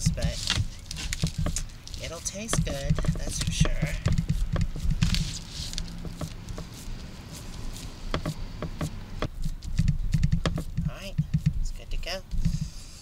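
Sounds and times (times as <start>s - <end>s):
hands patting wet meat: 0.0s - 6.7s
low steady hum: 0.0s - 13.0s.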